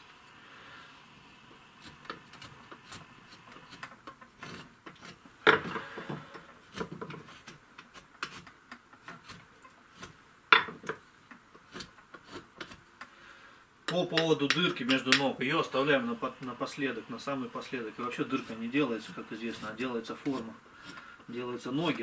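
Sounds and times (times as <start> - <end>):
chisel clicking and scraping wood: 1.8 - 13.1, 13.9 - 15.3, 18.3 - 21.1.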